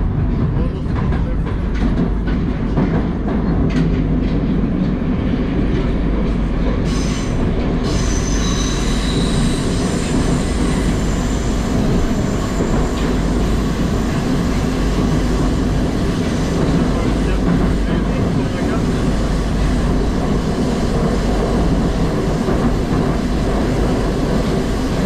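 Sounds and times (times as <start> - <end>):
train wheels rumbling on rails: 0.0 - 25.0
high-pitched wheel squeal: 6.9 - 11.7.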